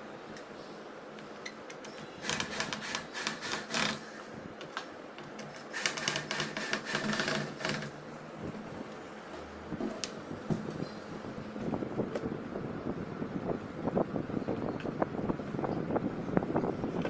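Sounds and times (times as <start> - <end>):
cordless drill boring into chipboard: 2.0 - 4.0, 5.6 - 7.9.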